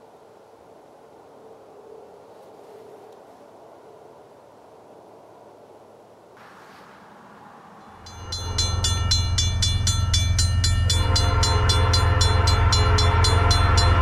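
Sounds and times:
heavy low hum: 7.0s - 14.0s
steady lower tones: 7.2s - 14.0s
railroad crossing bell ringing: 7.8s - 14.0s.

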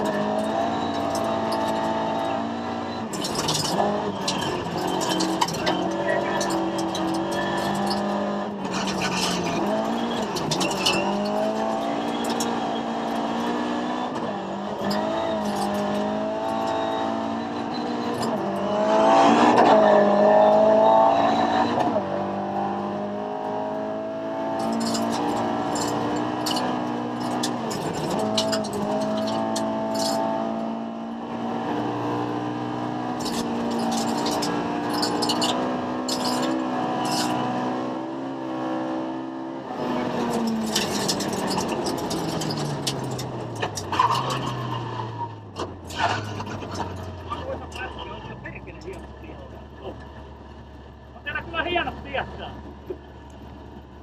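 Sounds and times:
rally car engine revving: 0.0s - 54.0s
gravel striking car: 3.0s - 13.5s, 40.0s - 50.6s.

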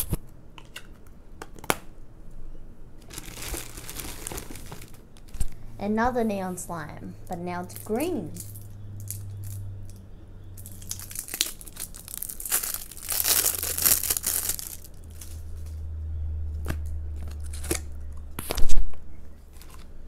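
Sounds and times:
plastic shrink-wrap tearing: 3.0s - 5.4s, 10.6s - 15.8s.

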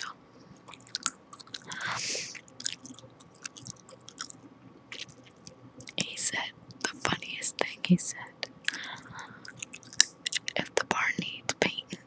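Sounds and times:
wet gum chewing clicks: 0.7s - 6.1s, 8.4s - 11.4s
breathy hiss: 1.7s - 2.4s.

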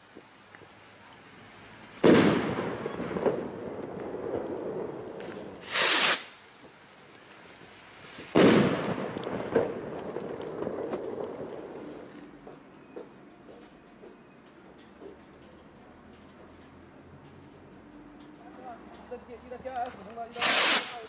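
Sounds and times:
faint firework crackles: 0.0s - 13.8s, 18.2s - 21.0s
firework bang with echo: 2.0s - 6.4s, 8.3s - 12.0s
rocket launch whoosh: 5.5s - 6.4s, 20.4s - 21.0s.

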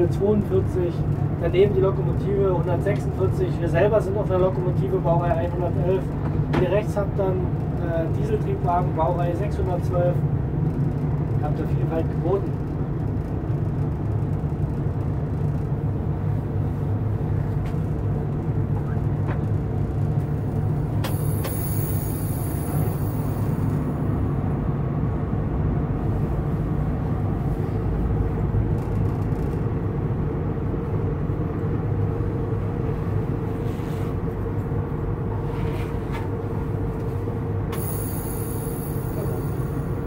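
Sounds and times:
locomotive cab running noise: 0.0s - 40.0s
low hum: 12.5s - 30.0s, 37.7s - 40.0s.

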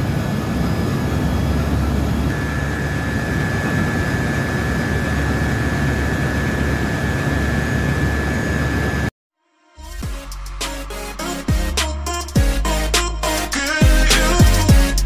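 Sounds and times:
engine room machinery roar: 0.0s - 9.1s.

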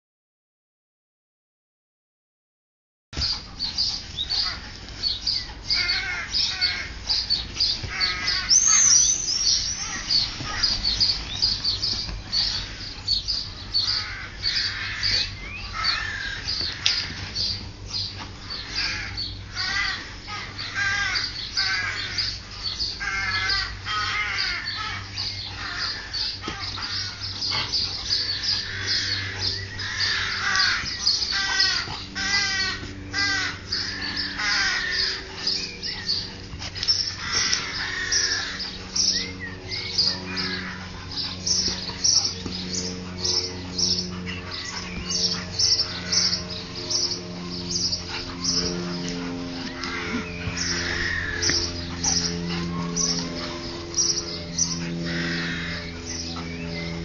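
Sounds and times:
birds chirping and warbling: 3.2s - 57.0s
crow-like cawing: 5.7s - 7.0s, 7.8s - 8.8s, 9.8s - 10.8s, 13.8s - 17.1s, 18.6s - 22.3s, 23.0s - 27.6s, 28.3s - 36.2s, 37.0s - 38.9s, 39.8s - 42.0s, 49.6s - 56.5s.

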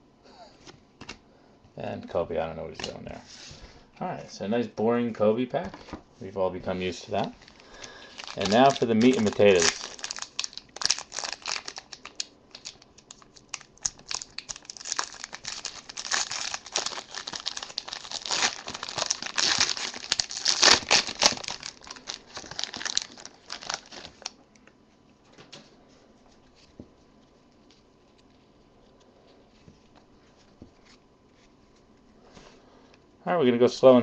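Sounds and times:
foil wrapper tearing and crinkling: 7.4s - 24.3s.

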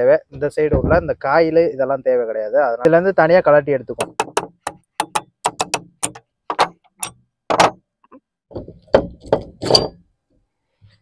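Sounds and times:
heavier knocks: 4.0s - 7.8s
metallic clicks of hand tools: 5.0s - 6.2s.

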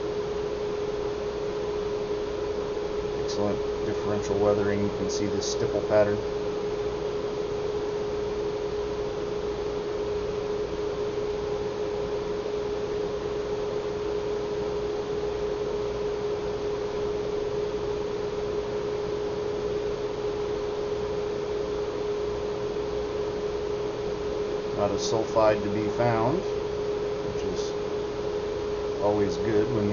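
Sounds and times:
steady mid-pitched hum: 0.0s - 29.9s
constant hiss: 1.0s - 6.9s, 21.8s - 29.9s.

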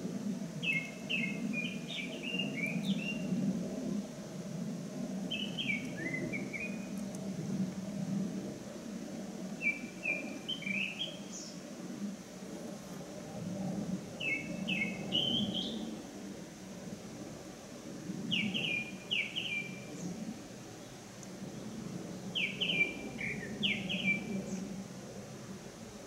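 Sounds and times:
songbird singing: 0.5s - 3.4s, 5.1s - 7.3s, 9.5s - 11.6s, 14.0s - 16.2s, 18.2s - 24.8s.

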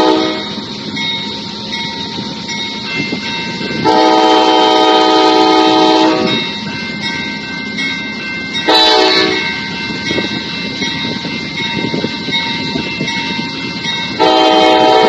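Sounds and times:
locomotive air horn blasts: 0.0s - 0.5s, 3.8s - 6.4s, 8.7s - 9.4s, 14.2s - 15.0s
rumble of approaching train: 0.0s - 15.0s.

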